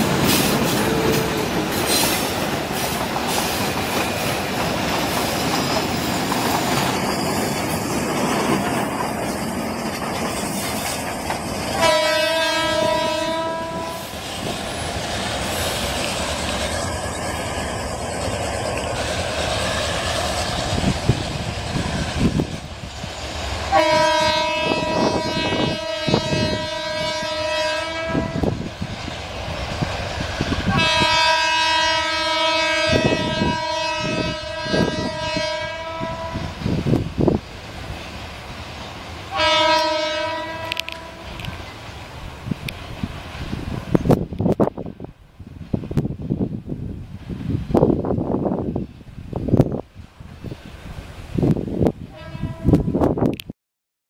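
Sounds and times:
train rumble and wheel clatter: 0:00.0 - 0:53.5
locomotive horn blasts: 0:11.8 - 0:14.1, 0:23.7 - 0:28.6, 0:30.7 - 0:36.6, 0:39.3 - 0:41.6, 0:52.1 - 0:53.1.

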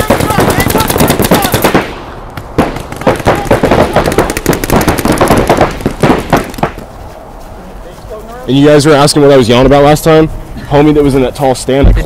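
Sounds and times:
paintball markers firing: 0:00.0 - 0:06.9.

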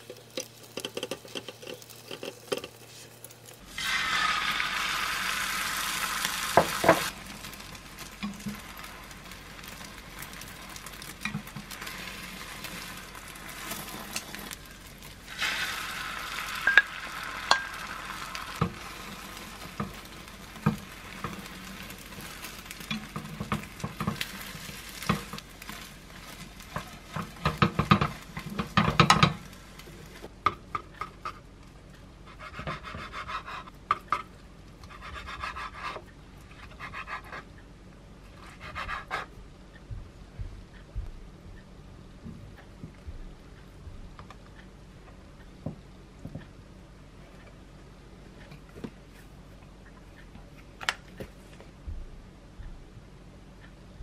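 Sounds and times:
egg sizzling in a pan: 0:00.0 - 0:31.3
utensils knocking against a pan: 0:22.8 - 0:24.3, 0:26.7 - 0:29.4.

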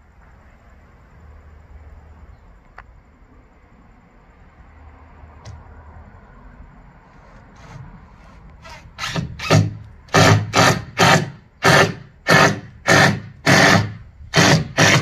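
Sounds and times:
hammer blows on wood: 0:09.0 - 0:15.0.

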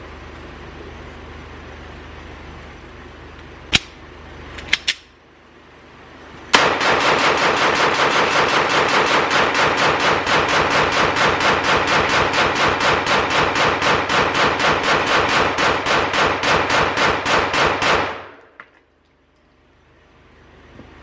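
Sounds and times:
rapid pistol gunshots: 0:06.6 - 0:18.4.

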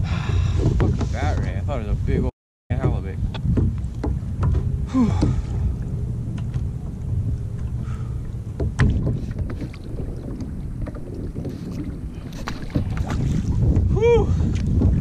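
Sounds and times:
wind buffeting microphone: 0:00.0 - 0:15.0
water slapping against kayak hull: 0:00.2 - 0:01.7, 0:02.7 - 0:15.0
sharp knocks: 0:02.7 - 0:05.4, 0:08.6 - 0:09.6.

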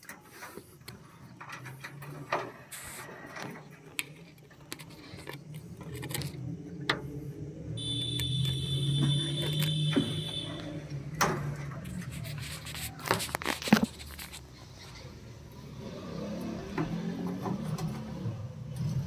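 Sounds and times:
taps and rubbing on wooden box: 0:11.4 - 0:14.4.

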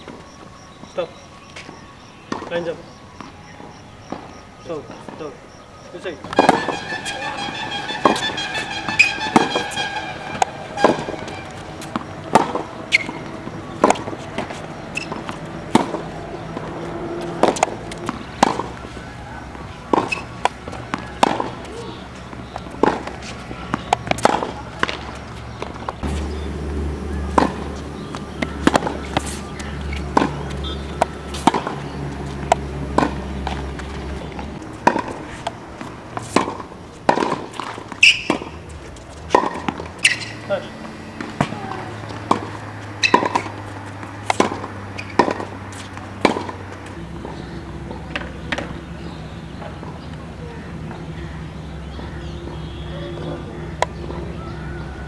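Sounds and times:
tennis ball bouncing: 0:01.6 - 0:05.4, 0:06.0 - 0:55.0
racquet hitting tennis ball: 0:06.2 - 0:50.0.

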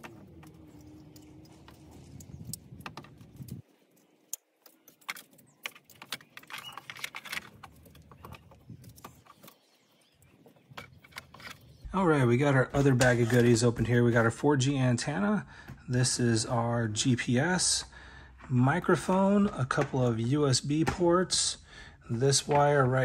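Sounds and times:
low hum: 0:00.0 - 0:03.6.

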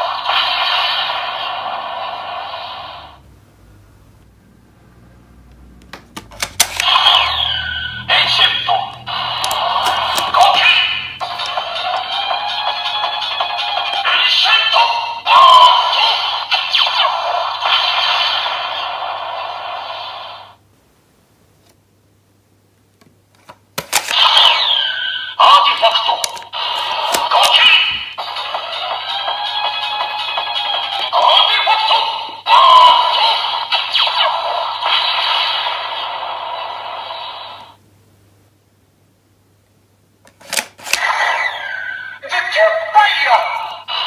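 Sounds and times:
toy speaker sound effect: 0:06.8 - 0:18.6, 0:24.0 - 0:36.1, 0:40.9 - 0:44.0
sharp toy clicks: 0:08.9 - 0:10.6, 0:23.8 - 0:24.8, 0:25.8 - 0:28.6.

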